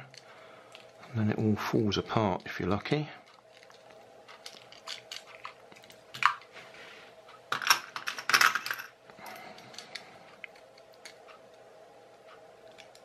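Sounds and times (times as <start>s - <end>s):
small parts clicking and tapping: 3.2s - 6.5s, 7.5s - 11.5s, 12.3s - 13.0s.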